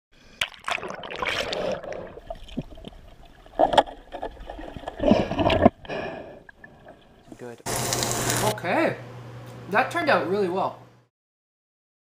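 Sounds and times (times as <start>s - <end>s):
water splashing and sloshing: 0.3s - 8.4s.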